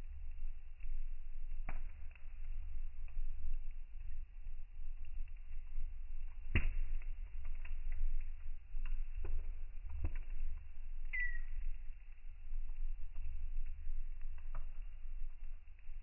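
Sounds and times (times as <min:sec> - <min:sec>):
stove low rumble: 0:00.0 - 0:16.0
wood fire crackling and popping: 0:00.0 - 0:16.0.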